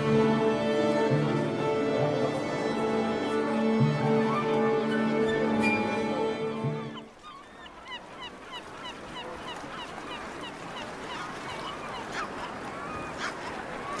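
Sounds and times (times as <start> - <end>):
birds chirping: 6.6 - 14.0.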